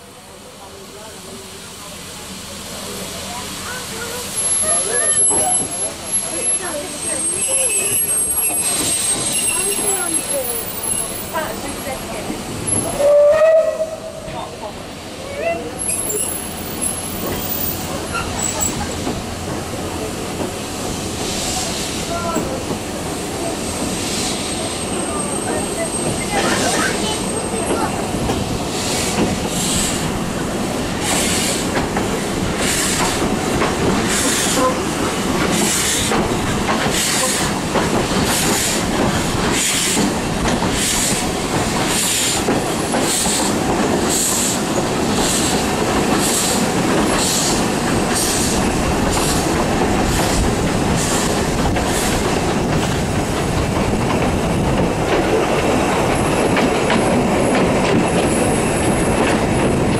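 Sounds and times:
coach wheels rumbling on track: 0:00.0 - 0:59.9
high wheel squeal: 0:04.4 - 0:11.3, 0:15.6 - 0:18.8
steam locomotive exhaust beat: 0:16.4 - 0:59.9.

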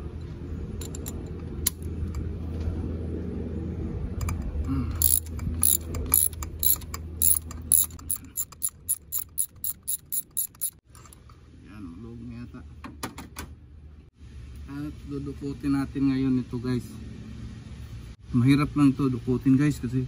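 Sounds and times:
ratchet wrench clicking: 0:05.0 - 0:10.8.

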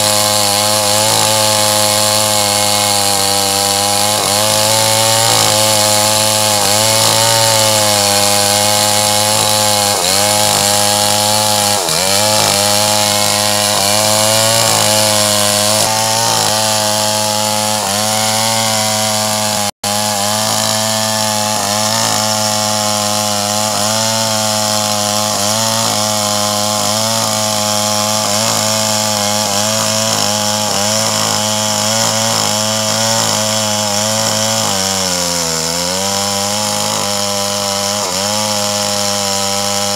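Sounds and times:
chainsaw cutting through log: 0:00.0 - 0:39.9.

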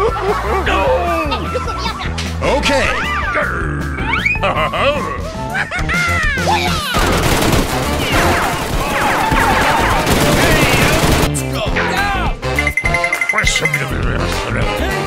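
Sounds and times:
background music: 0:00.0 - 0:15.0
rapid automatic gunfire: 0:07.0 - 0:11.4.

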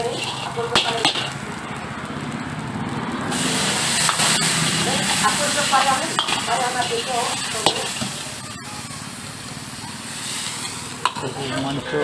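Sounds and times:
food sizzling in a wok: 0:00.0 - 0:12.0.

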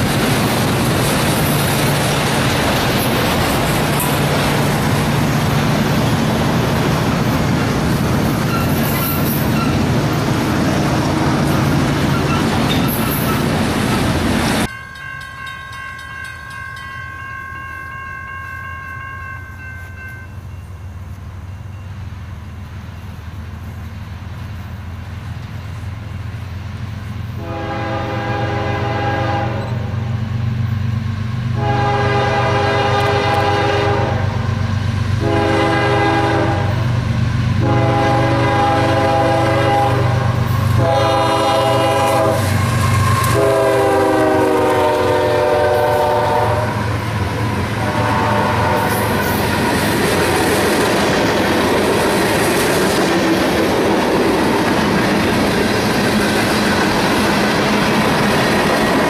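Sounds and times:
low train rumble: 0:00.0 - 0:59.0
train wheel and rail noise: 0:00.0 - 0:59.0
locomotive horn blasts: 0:27.4 - 0:29.9, 0:31.6 - 0:34.4, 0:35.2 - 0:36.9, 0:37.6 - 0:49.4.

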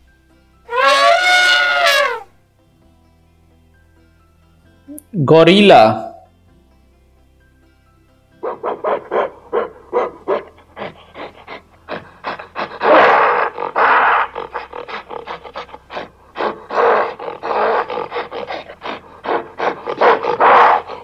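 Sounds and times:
gorilla roaring: 0:00.7 - 0:02.3, 0:08.4 - 0:21.0.

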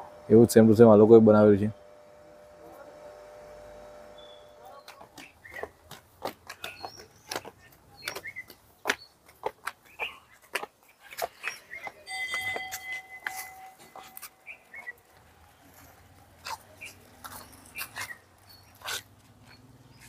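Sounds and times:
small birds chirping: 0:04.1 - 0:20.0
footsteps on concrete steps: 0:04.6 - 0:20.0.

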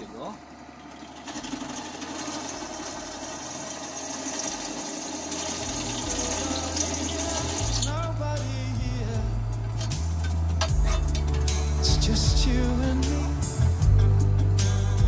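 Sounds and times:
grinding stone whirring on steel: 0:01.0 - 0:08.1.

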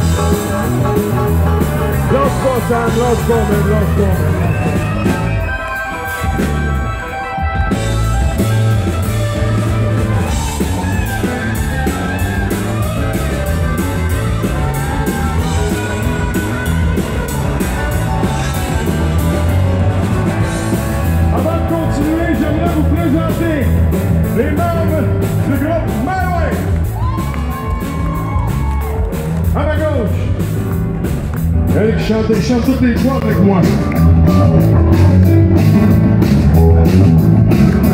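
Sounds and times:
bass: 0:00.0 - 0:37.9
drums: 0:00.0 - 0:37.9
electric guitar: 0:00.0 - 0:37.9.

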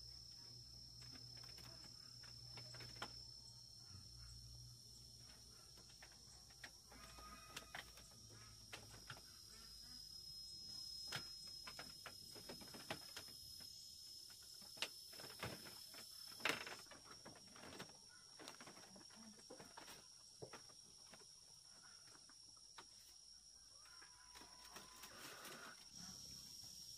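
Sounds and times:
high-pitched insect drone: 0:00.0 - 0:26.9.

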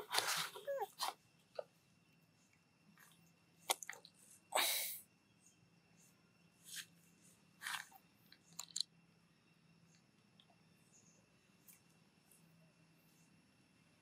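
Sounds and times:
monkey crunching peanuts: 0:07.6 - 0:08.9.

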